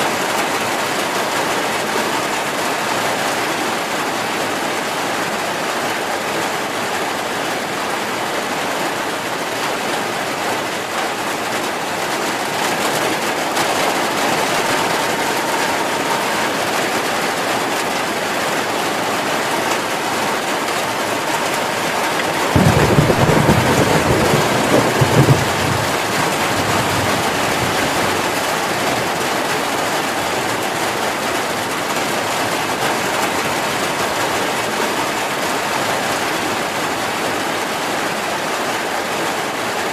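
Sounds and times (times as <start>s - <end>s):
heavy rain falling: 0.0s - 39.9s
thunder rumble: 20.0s - 29.7s.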